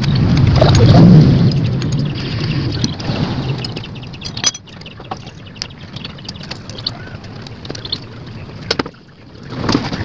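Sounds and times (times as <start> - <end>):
metal cover clicking and knocking: 4.3 - 4.6.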